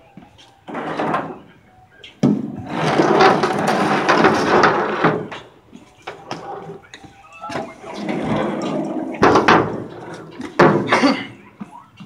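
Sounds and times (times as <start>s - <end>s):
wire rope scraping on steel deck: 0.7s - 1.4s, 2.6s - 5.5s, 7.9s - 10.4s.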